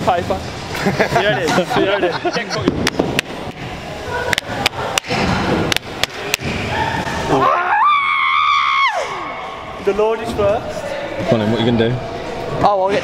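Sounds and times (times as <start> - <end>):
sharp slaps and clacks: 4.3 - 6.6.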